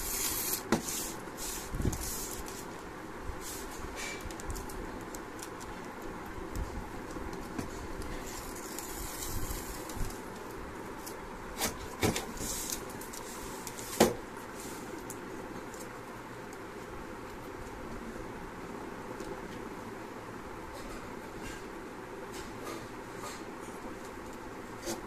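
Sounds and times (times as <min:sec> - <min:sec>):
paper sheets rustling: 0:00.0 - 0:02.8
steady background noise: 0:00.0 - 0:25.0.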